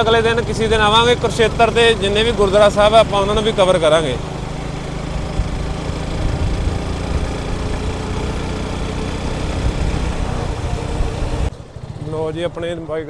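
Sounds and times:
motorcycle engine running: 0.0 - 13.0
road noise: 0.0 - 13.0
wind rushing: 5.1 - 11.5.

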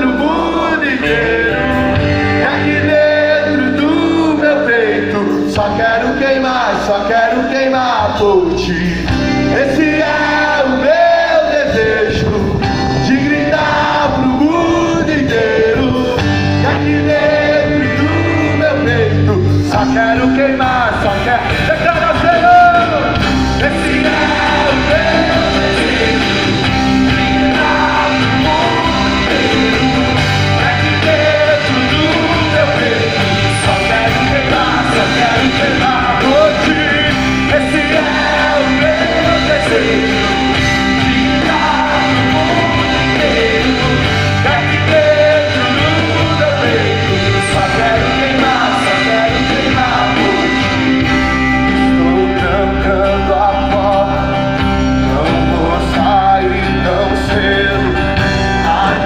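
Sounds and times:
people singing together: 0.0 - 8.2, 9.4 - 54.5, 55.1 - 59.0
guitars and bass: 0.0 - 59.0.

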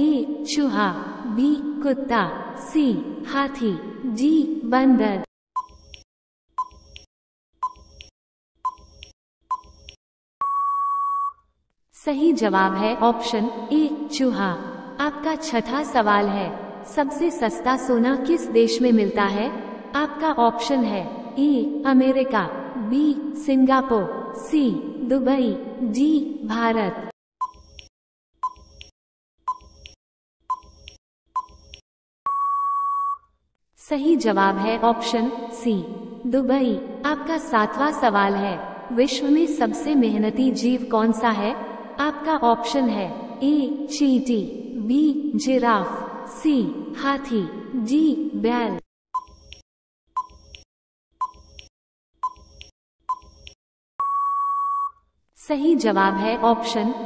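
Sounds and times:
electronic tick-beeps: 5.6 - 6.0, 6.6 - 7.8, 8.7 - 8.9, 27.4 - 27.6, 29.5 - 30.7, 31.4 - 33.2, 49.2 - 49.6, 50.2 - 50.4, 51.2 - 51.4, 52.2 - 53.3
steady timer beep: 6.6 - 6.8, 10.4 - 11.4, 27.4 - 27.6, 30.5 - 30.7, 32.3 - 33.2, 49.2 - 49.4, 50.2 - 50.4, 51.2 - 51.4, 53.1 - 53.3, 54.0 - 55.0.

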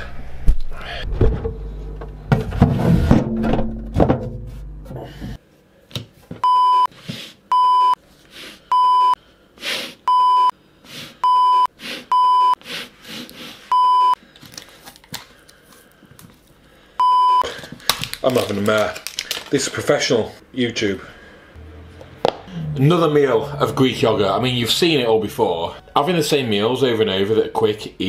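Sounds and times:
breathy voice sounds: 20.8 - 25.9.

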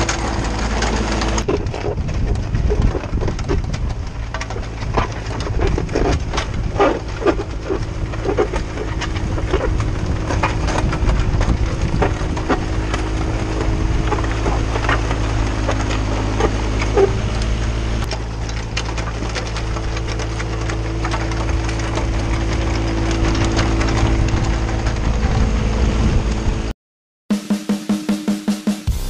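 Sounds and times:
diesel engine running: 0.0 - 26.7
gravel crunching under tracks: 0.0 - 26.7.

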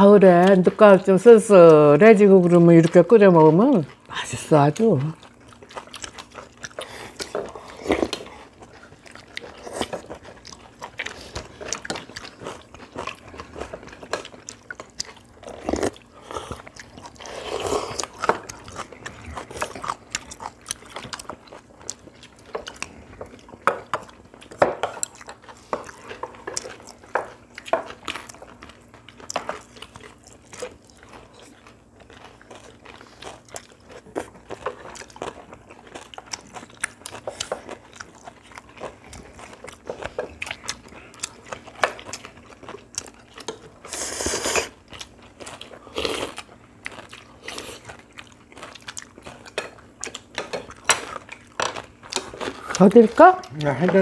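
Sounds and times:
people chewing and crunching: 0.0 - 54.0.

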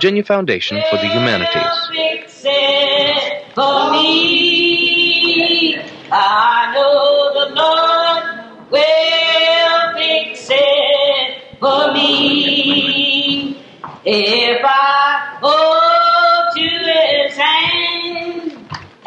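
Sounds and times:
hymn sung in long notes: 0.7 - 3.0.

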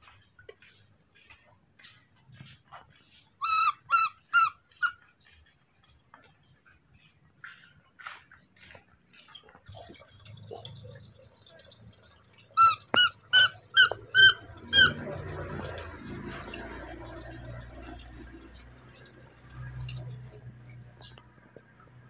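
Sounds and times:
infant monkey squeaky calls: 3.4 - 5.1, 12.5 - 20.8.

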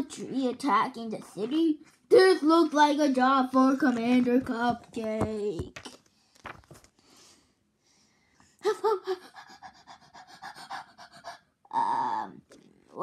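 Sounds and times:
person panting exaggeratedly: 9.1 - 11.6.

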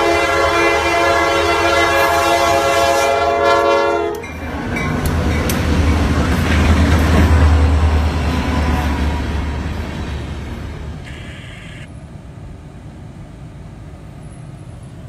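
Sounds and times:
locomotive air horn chord: 0.0 - 4.2
locomotive engine rumble: 0.0 - 15.0
wheels clicking on rails: 4.1 - 11.9.

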